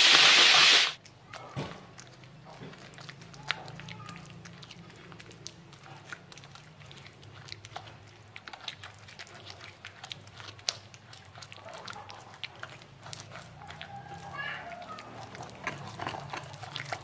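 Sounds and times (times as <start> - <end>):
pestle grinding in clay mortar: 0.0 - 1.0, 15.1 - 17.0.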